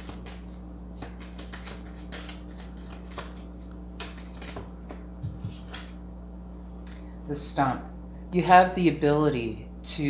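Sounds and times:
cards being shuffled: 0:00.0 - 0:06.0
steady low hum: 0:00.0 - 0:10.0.

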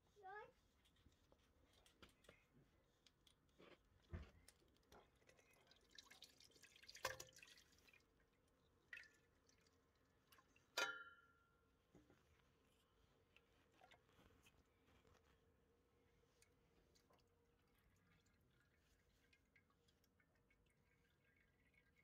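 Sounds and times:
oil pouring into metal pan: 0:04.5 - 0:11.3, 0:17.0 - 0:22.0.

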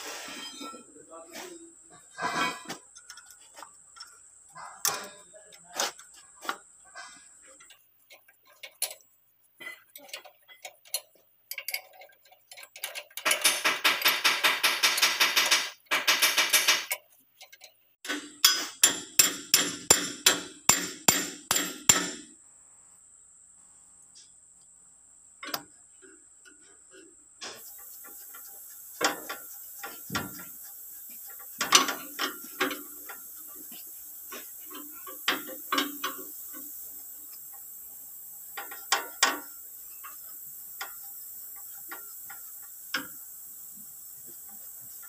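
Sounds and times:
hand tools clicking on metal: 0:02.6 - 0:22.2, 0:27.4 - 0:37.7, 0:38.5 - 0:43.2.

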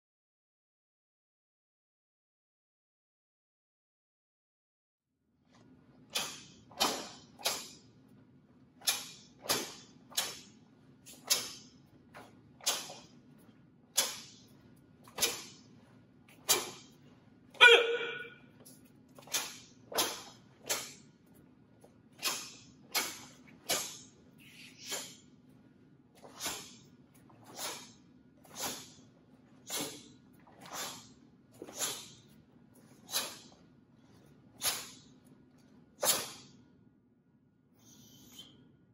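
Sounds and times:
low room hum: 0:05.4 - 0:38.9
sharp breath exhalations: 0:24.5 - 0:25.2.

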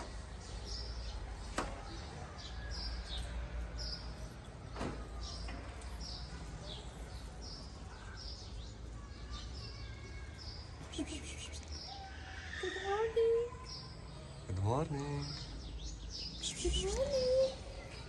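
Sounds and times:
low street hum: 0:00.0 - 0:18.0
small birds chirping: 0:00.0 - 0:18.0.

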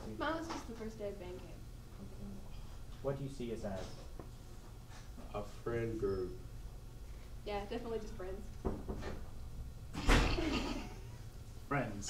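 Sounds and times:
group laughing: 0:10.1 - 0:11.1.

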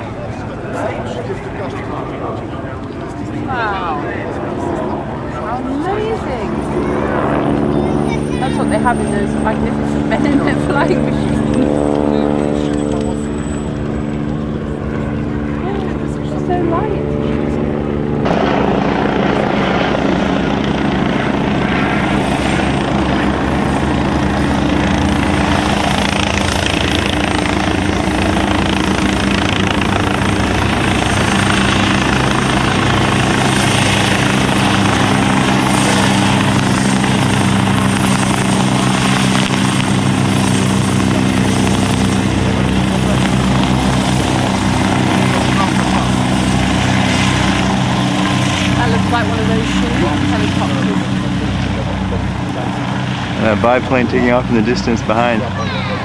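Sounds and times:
helicopter rotor and engine drone: 0:00.0 - 0:56.0
faint high whine: 0:11.0 - 0:16.4.

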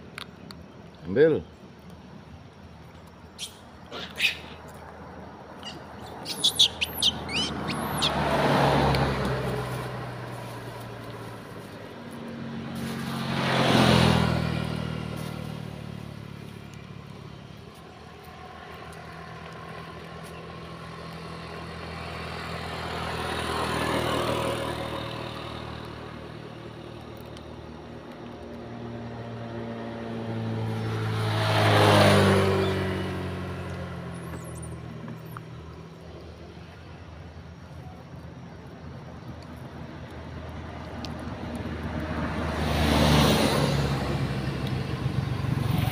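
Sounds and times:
vehicles passing on road: 0:00.0 - 0:45.9
brief high-pitched calls: 0:03.4 - 0:04.6, 0:05.6 - 0:08.2.

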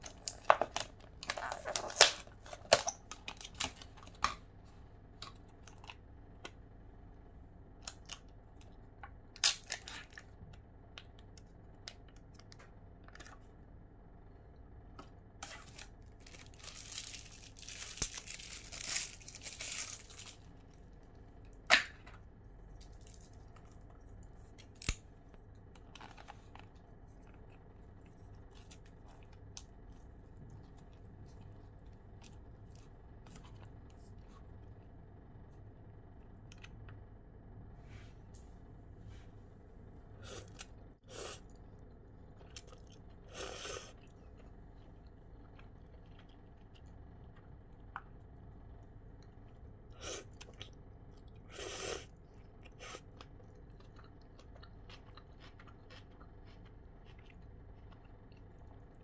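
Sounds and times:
plastic film crinkling and tearing: 0:15.4 - 0:20.5.

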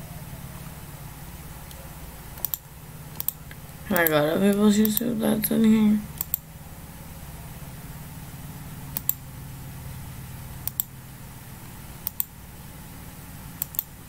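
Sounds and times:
low background hum: 0:00.0 - 0:14.0
mouse or keyboard clicks: 0:02.4 - 0:04.1, 0:06.2 - 0:06.4, 0:10.6 - 0:10.9, 0:12.0 - 0:12.3, 0:13.6 - 0:13.9.

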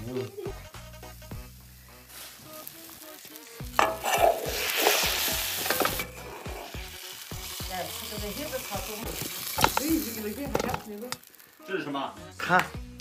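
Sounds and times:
food sizzling: 0:00.0 - 0:13.0
metal ladle scraping a wok: 0:03.6 - 0:07.1, 0:09.1 - 0:11.3.

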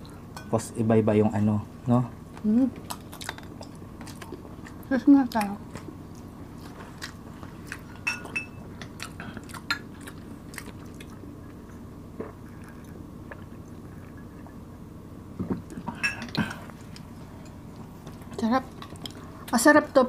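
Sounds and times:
glass mugs clinking: 0:08.0 - 0:08.6, 0:15.9 - 0:16.4.

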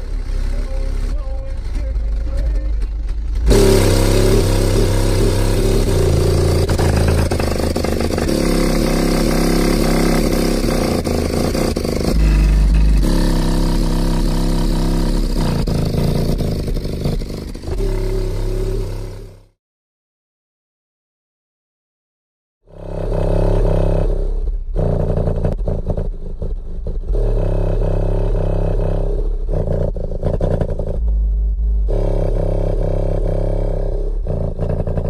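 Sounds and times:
distorted deep bass notes: 0:00.0 - 0:19.6, 0:22.7 - 0:35.0
rattling: 0:00.1 - 0:19.3.

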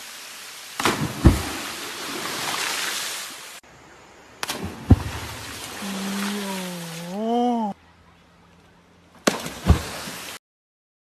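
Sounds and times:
people splashing into water: 0:00.8 - 0:03.1, 0:04.4 - 0:07.6, 0:09.2 - 0:10.4.

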